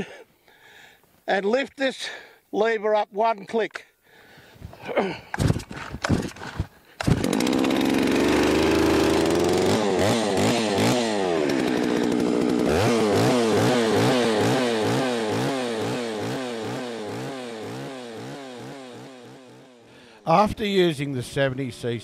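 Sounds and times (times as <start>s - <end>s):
chainsaw starting and idling: 4.8s - 20.5s.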